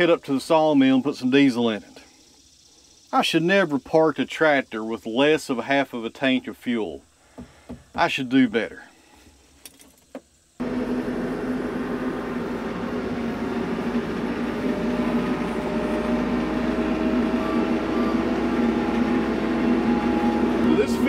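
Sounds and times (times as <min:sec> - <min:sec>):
tractor diesel engine running: 0:10.6 - 0:21.0.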